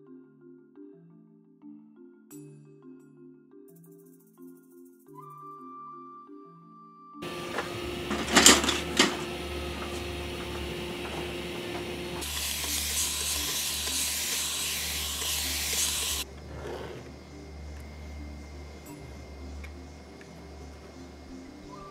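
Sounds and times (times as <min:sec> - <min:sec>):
spray bottle hissing: 0:12.2 - 0:16.3.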